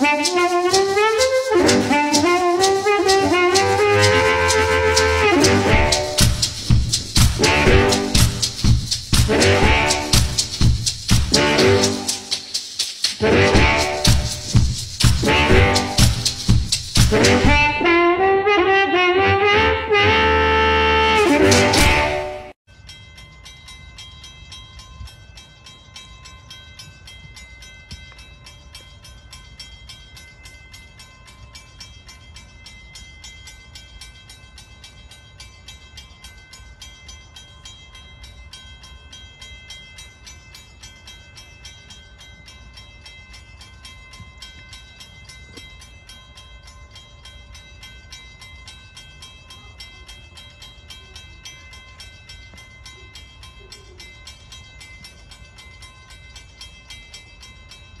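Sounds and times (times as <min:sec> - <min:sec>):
fast faint ticking: 0:00.0 - 0:17.6.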